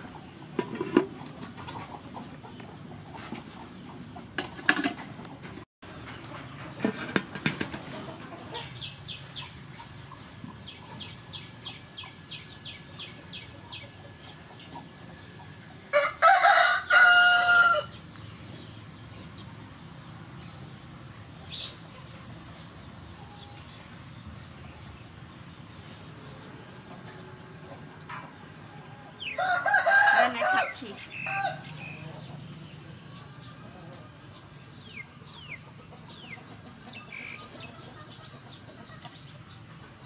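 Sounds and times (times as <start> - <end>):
rooster crowing: 15.9 - 17.9, 28.8 - 31.8.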